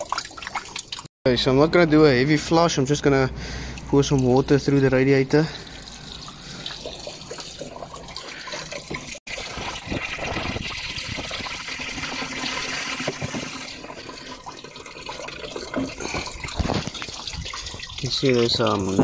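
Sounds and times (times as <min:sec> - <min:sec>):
water pouring into radiator: 0:00.0 - 0:01.1, 0:03.5 - 0:19.0
water splashing into plastic bucket: 0:00.0 - 0:01.1, 0:05.6 - 0:19.0.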